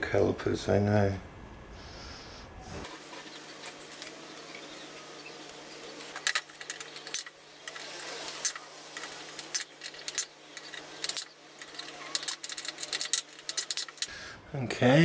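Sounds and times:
metal parts clicking and tapping: 5.9s - 14.1s.

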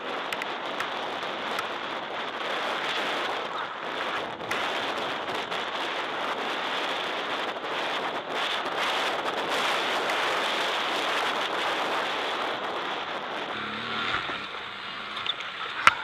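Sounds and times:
wind noise on microphone: 0.0s - 16.0s
light ticks: 13.8s - 16.0s.

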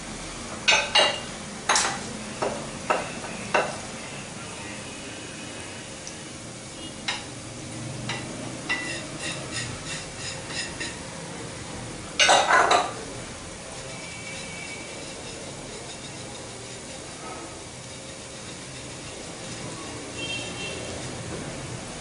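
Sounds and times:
kitchen utensils clinking: 0.7s - 2.0s, 8.1s - 11.0s, 12.2s - 13.0s.

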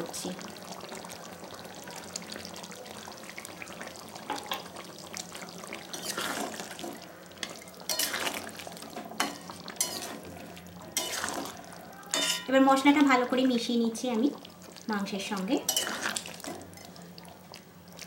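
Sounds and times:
chicken sizzling in gravy: 0.0s - 18.0s
spatula scraping a pan: 5.9s - 6.7s, 7.4s - 8.5s, 9.2s - 10.3s, 11.0s - 12.5s, 15.7s - 16.9s.

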